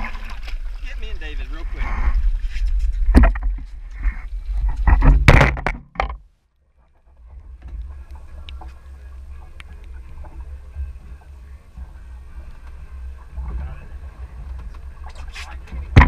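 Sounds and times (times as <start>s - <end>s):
thumps and knocks: 3.0s - 3.7s, 4.6s - 6.3s, 15.7s - 16.0s
boat engine droning: 7.0s - 16.0s
faint ticks: 7.6s - 10.4s.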